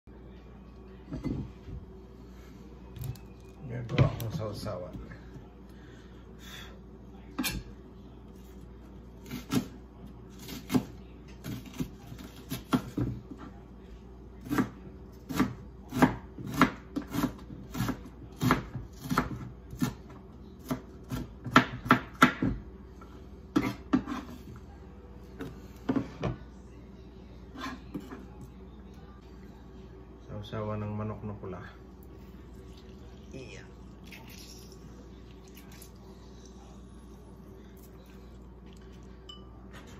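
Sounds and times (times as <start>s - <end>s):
knife chopping on cutting board: 20.6s - 22.6s.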